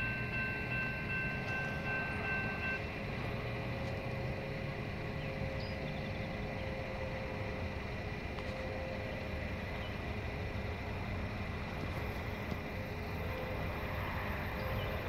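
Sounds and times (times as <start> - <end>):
railroad crossing bell ringing: 0.0 - 7.8.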